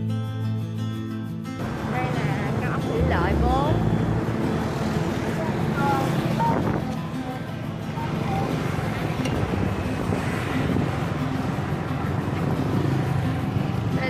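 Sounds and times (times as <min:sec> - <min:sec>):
wind buffeting microphone: 0:01.6 - 0:07.0, 0:08.0 - 0:13.9
road traffic engines: 0:01.6 - 0:14.0.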